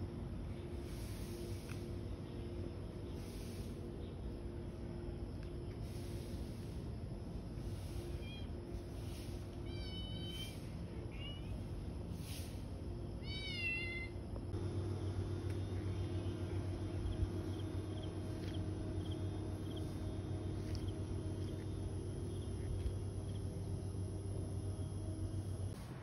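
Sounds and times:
steady low hum: 0.0s - 26.0s
cat meowing: 13.2s - 14.2s.

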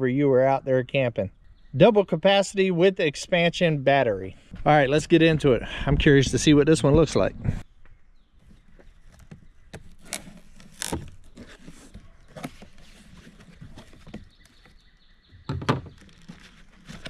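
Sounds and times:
cardboard box being opened: 9.1s - 14.8s, 15.9s - 17.0s.

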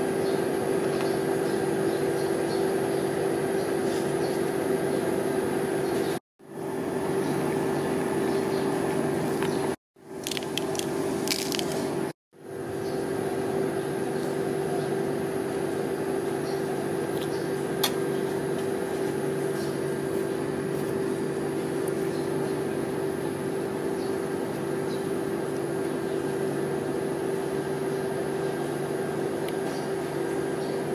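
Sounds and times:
compressor humming: 0.0s - 30.9s.

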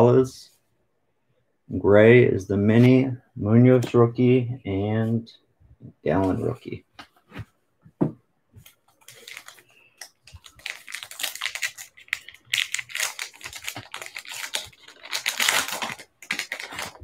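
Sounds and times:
wrapper tearing and crinkling: 9.1s - 17.0s.

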